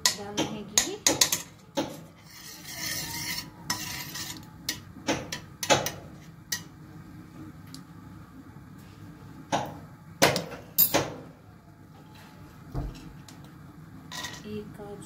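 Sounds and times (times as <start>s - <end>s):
spoon scraping a pan: 1.2s - 4.8s.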